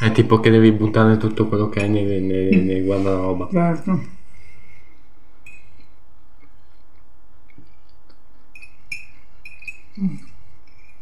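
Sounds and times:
fork clinking against glass bowl: 8.5 - 11.0.

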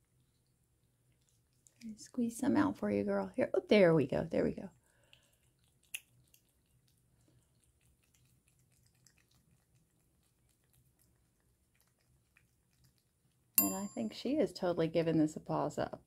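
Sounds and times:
cat licking wet clicks: 0.0 - 2.1, 4.7 - 13.6.

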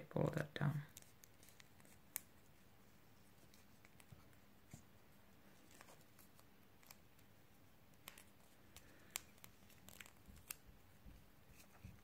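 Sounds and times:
fingers clicking and rustling: 0.9 - 2.4, 7.9 - 10.8.

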